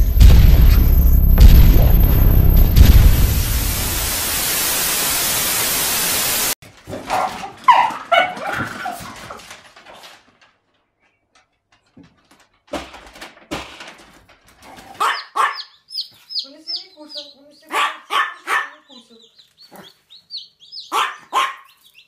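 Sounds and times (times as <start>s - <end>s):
static hiss: 0.0s - 6.6s
small dog whining and yelping: 15.0s - 15.7s, 20.8s - 21.8s.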